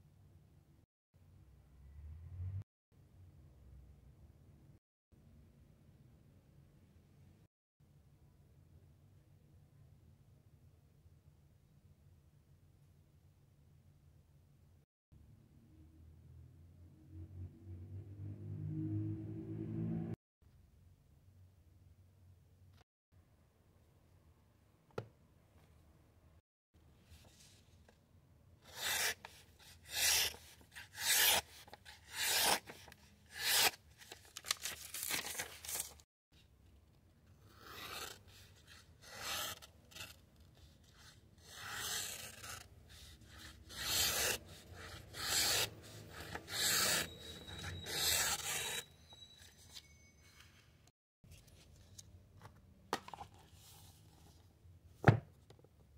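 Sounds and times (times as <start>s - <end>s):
knife slicing paper: 28.7s - 36.0s, 37.5s - 40.2s, 40.9s - 48.8s.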